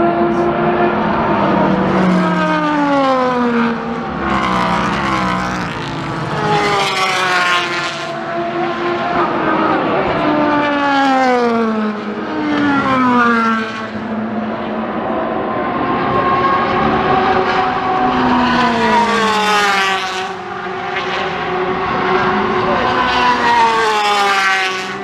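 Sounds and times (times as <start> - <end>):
race cars passing: 0.0 - 25.0.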